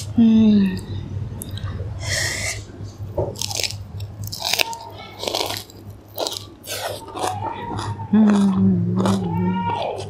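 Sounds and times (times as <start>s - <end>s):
crisp crunching chews: 3.4s - 10.0s.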